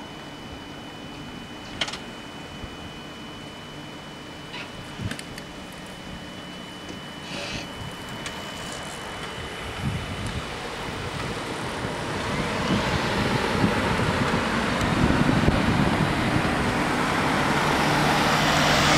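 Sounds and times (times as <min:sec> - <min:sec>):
van approaching: 0:07.9 - 0:18.9
car driving past: 0:16.8 - 0:18.9.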